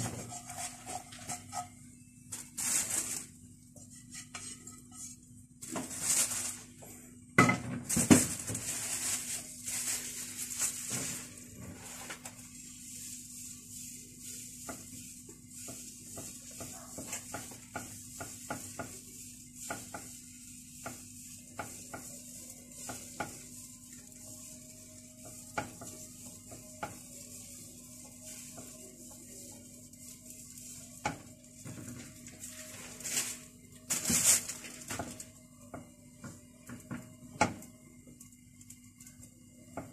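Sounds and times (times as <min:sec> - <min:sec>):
batter sizzling in a pan: 0:00.0 - 0:06.8, 0:07.4 - 0:39.9
plastic bag rustling: 0:02.3 - 0:03.4, 0:05.6 - 0:06.8, 0:07.8 - 0:17.4, 0:22.1 - 0:35.3.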